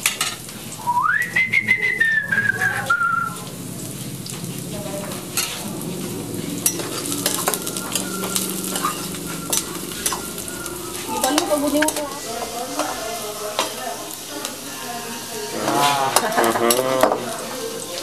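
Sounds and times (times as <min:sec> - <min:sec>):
food sizzling in a pan: 0:00.0 - 0:18.0
whistled note: 0:00.8 - 0:03.4, 0:07.3 - 0:11.4.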